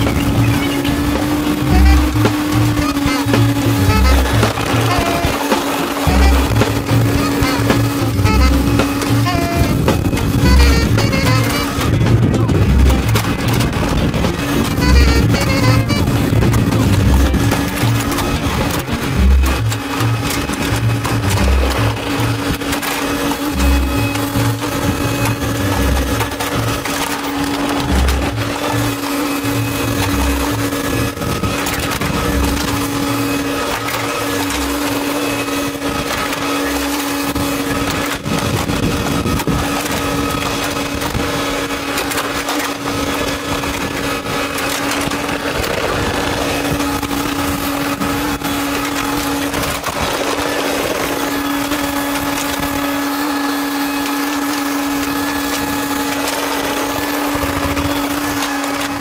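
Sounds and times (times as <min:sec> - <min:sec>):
low surges and thumps: 0:00.0 - 0:05.4, 0:06.0 - 0:35.2
excavator engine droning: 0:00.0 - 0:59.0.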